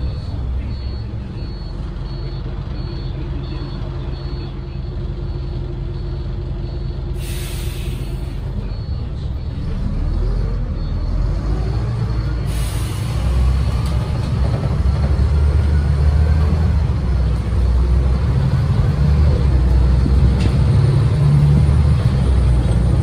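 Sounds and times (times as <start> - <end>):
high beeps: 0.0 - 7.0
diesel bus engine: 0.0 - 23.0
air brakes hissing: 7.2 - 8.6, 12.4 - 13.7.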